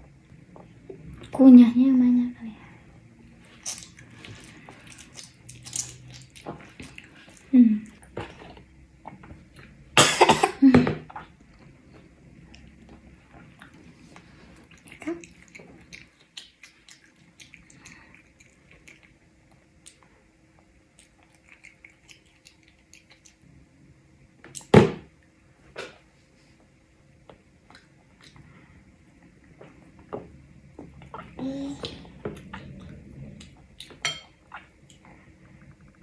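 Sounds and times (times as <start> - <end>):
toddler chewing: 3.4 - 9.8, 12.5 - 20.1, 20.9 - 23.4.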